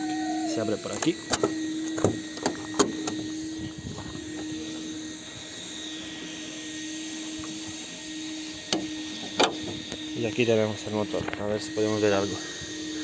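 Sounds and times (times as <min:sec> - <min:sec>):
steady hum: 0:00.0 - 0:13.0
car bonnet being released: 0:00.9 - 0:03.2.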